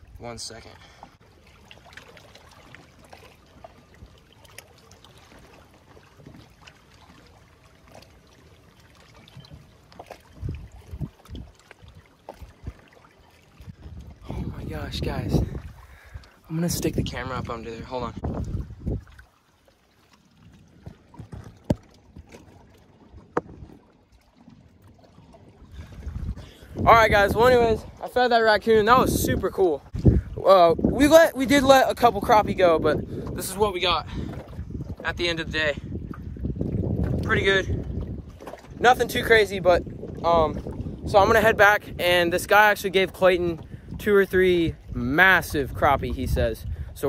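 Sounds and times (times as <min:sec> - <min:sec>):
low wind rumble: 0:10.3 - 0:12.9, 0:13.5 - 0:19.2, 0:25.1 - 0:47.0.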